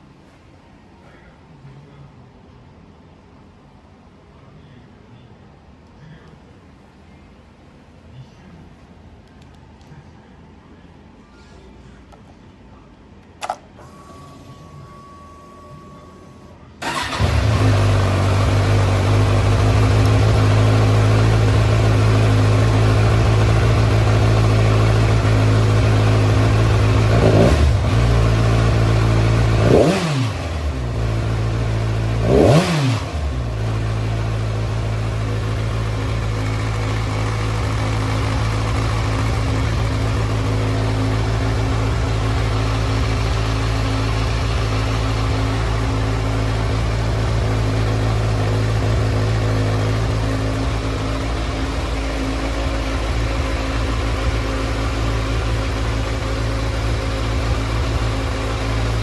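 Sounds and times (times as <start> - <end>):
click: 9.2 - 10.0
short steady whine: 13.4 - 17.2
motorcycle engine idling and revving: 16.8 - 59.0.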